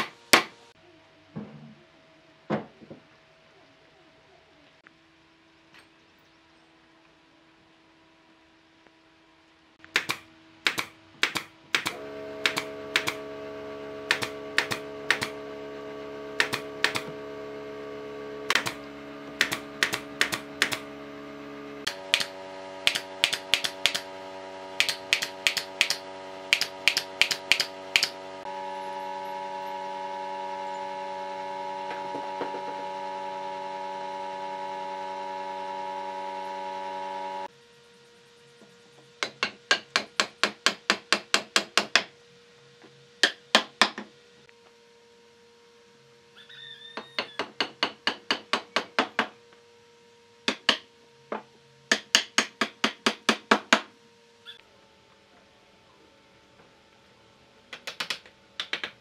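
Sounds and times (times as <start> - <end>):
sharp clicks: 9.8 - 13.2, 19.4 - 20.9, 21.8 - 24.1, 24.8 - 28.2, 57.7 - 59.0
cordless drill whining: 12.0 - 37.5.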